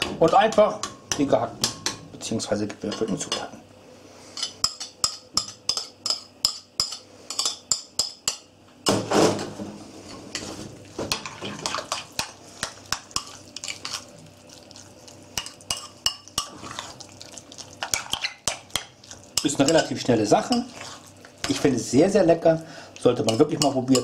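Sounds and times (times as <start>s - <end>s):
spoon stirring thick sauce: 11.6s - 21.8s.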